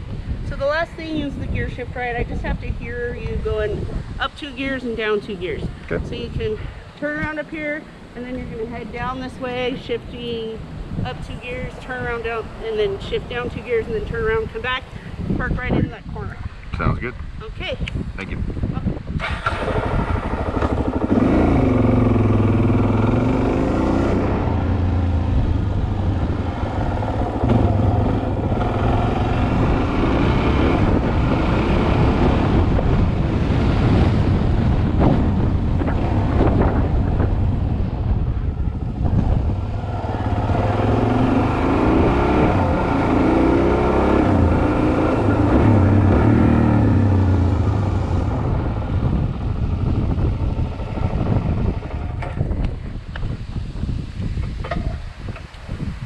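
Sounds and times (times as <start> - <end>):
motorcycle engine revving: 19.2 - 53.1.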